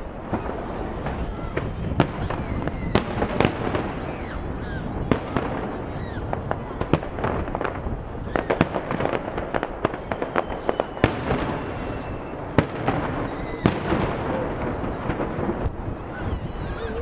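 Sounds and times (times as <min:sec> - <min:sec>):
firework booms: 0:00.0 - 0:17.0
fireworks bangs and crackles: 0:00.0 - 0:17.0.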